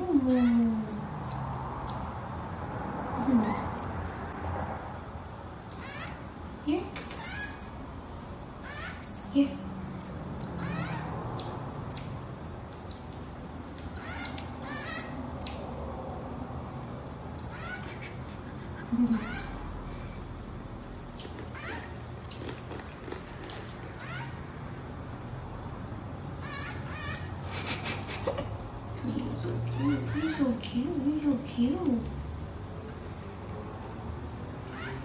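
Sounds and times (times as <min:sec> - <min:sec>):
marmoset high-pitched chirps: 0:00.3 - 0:02.7, 0:03.3 - 0:04.4, 0:05.8 - 0:12.2, 0:12.8 - 0:15.7, 0:16.7 - 0:20.3, 0:21.2 - 0:23.0, 0:23.6 - 0:24.4, 0:26.4 - 0:27.4, 0:29.0 - 0:31.4, 0:32.4 - 0:35.0.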